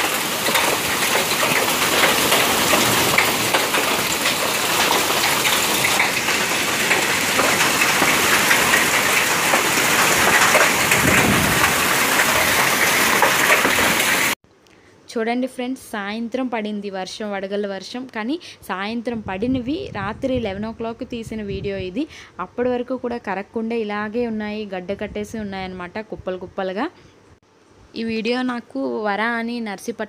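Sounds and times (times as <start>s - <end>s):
hail and rain pelting: 0.0s - 14.4s.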